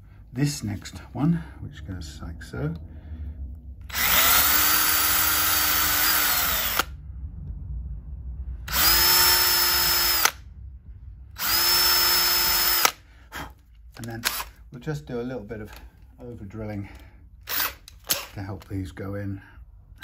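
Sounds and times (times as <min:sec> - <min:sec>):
electric drill whining: 0:03.9 - 0:07.0, 0:08.7 - 0:10.4, 0:11.4 - 0:13.0, 0:17.5 - 0:18.2.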